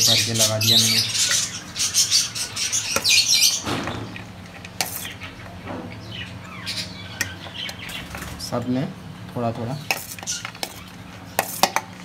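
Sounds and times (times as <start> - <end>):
budgerigars chirping: 0.0 - 4.2, 4.9 - 8.2.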